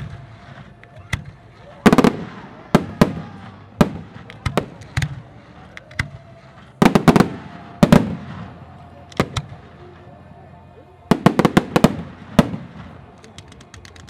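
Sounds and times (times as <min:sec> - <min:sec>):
fireworks bursting with echo: 0:00.0 - 0:10.3, 0:11.1 - 0:14.0.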